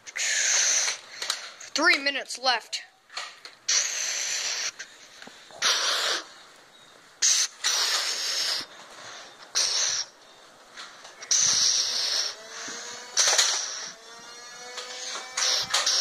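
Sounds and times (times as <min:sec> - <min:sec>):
heavy rough breathing: 0:11.0 - 0:14.0.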